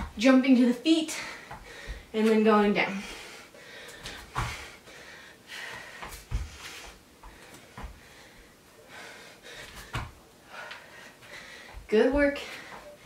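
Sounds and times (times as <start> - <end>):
person breathing hard: 1.1 - 2.1, 2.9 - 12.9
dull thuds on yoga mat: 9.8 - 10.2.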